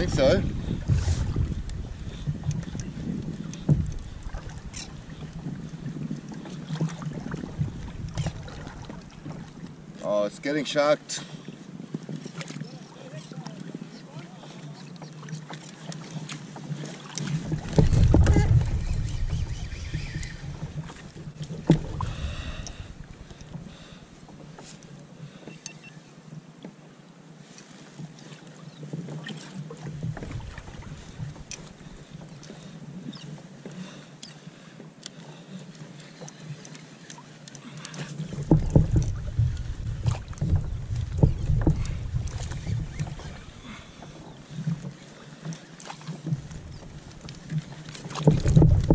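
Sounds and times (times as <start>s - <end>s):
wind buffeting microphone: 0.0s - 6.3s, 7.0s - 9.6s, 17.4s - 23.9s, 38.4s - 43.7s, 48.3s - 48.9s
water sounds around kayak: 0.0s - 48.9s.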